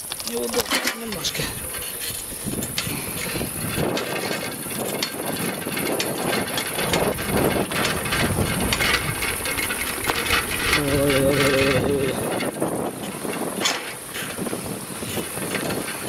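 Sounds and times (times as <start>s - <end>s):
bicycle clicking and knocking: 0.0s - 16.0s
tyres crunching on gravel: 0.0s - 16.0s.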